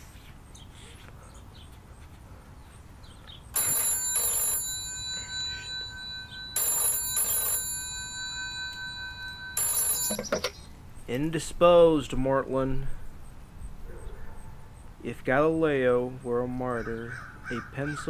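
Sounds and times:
telephone bell ringing: 0:03.6 - 0:10.6.

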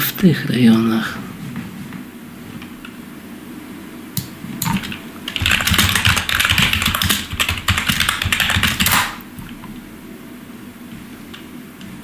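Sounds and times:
fast keyboard typing: 0:04.6 - 0:09.2.

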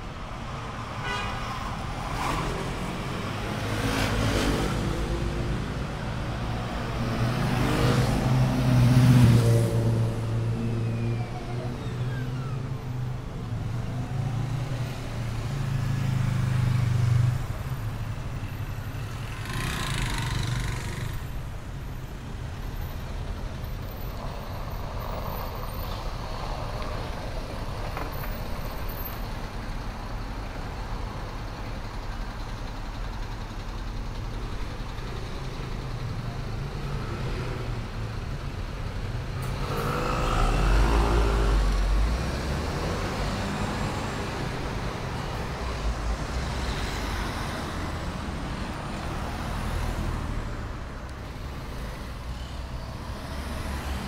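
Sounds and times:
street noise: 0:00.0 - 0:54.0
motor scooters passing: 0:19.3 - 0:21.2.

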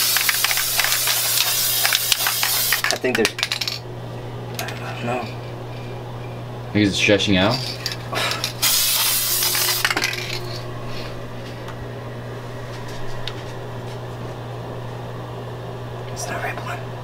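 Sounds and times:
aerosol spray can hissing: 0:00.0 - 0:02.8, 0:08.6 - 0:10.2
low hum: 0:03.3 - 0:17.0.

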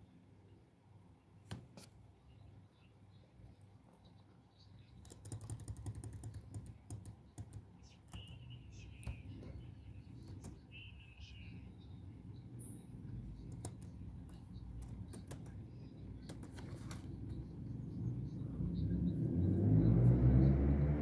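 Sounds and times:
faint clicks and taps: 0:04.9 - 0:10.7, 0:13.4 - 0:17.4
low engine rumble: 0:15.6 - 0:21.0.

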